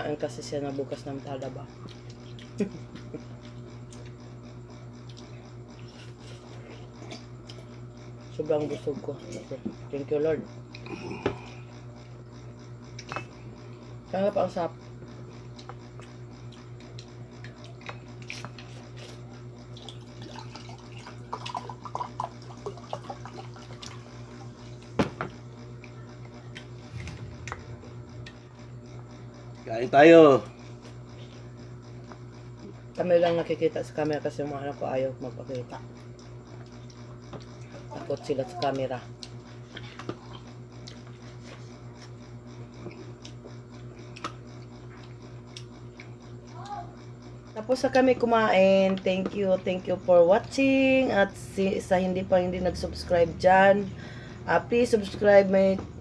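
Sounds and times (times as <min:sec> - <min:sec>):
steady low hum: 0:00.0 - 0:56.0
people eating and chewing: 0:01.8 - 0:03.1, 0:10.7 - 0:11.6, 0:15.6 - 0:24.5, 0:38.6 - 0:42.1, 0:42.8 - 0:46.2
low hum: 0:19.7 - 0:32.8, 0:47.5 - 0:56.0
drink pouring into a mug: 0:20.2 - 0:24.0.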